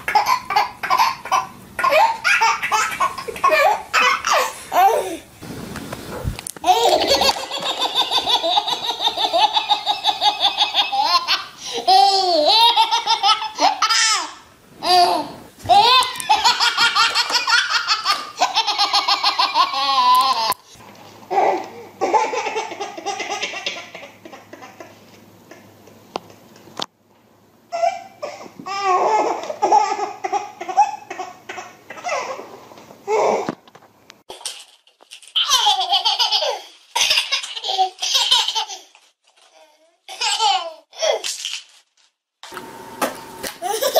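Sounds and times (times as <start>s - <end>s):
baby laughing: 0.0s - 5.2s, 6.6s - 20.6s, 21.3s - 25.6s, 27.7s - 32.5s, 35.4s - 39.0s, 39.6s - 41.3s, 43.6s - 43.9s.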